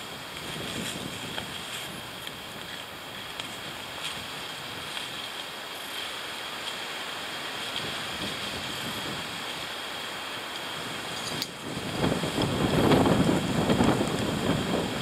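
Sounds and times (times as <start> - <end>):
wind through trees: 0.0 - 15.0
footsteps on leaf litter: 0.2 - 9.8.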